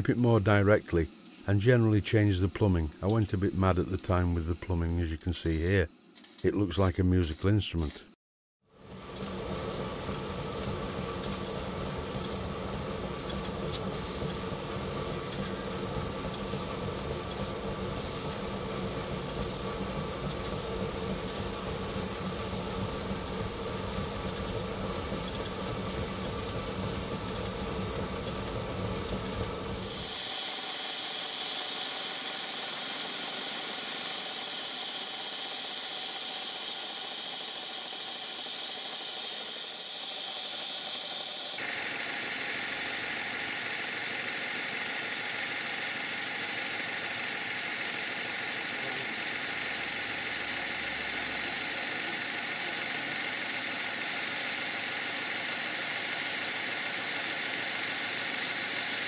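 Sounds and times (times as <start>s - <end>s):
steam hissing from safety valve: 0.0s - 8.2s, 29.5s - 59.0s.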